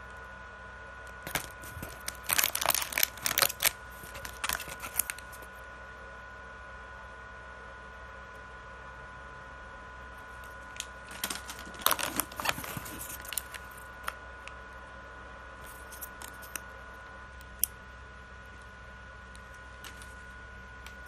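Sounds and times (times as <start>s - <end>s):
plastic wrappers crinkling: 1.2s - 5.5s, 11.0s - 14.2s, 15.6s - 16.6s, 19.8s - 20.2s.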